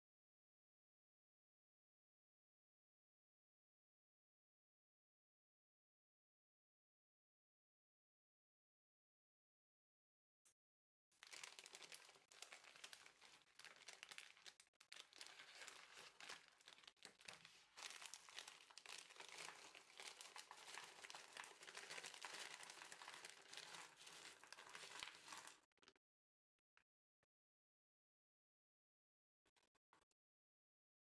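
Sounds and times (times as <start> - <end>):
candies tipping out: 11.2 - 25.6
plastic bag crinkling: 11.2 - 25.6.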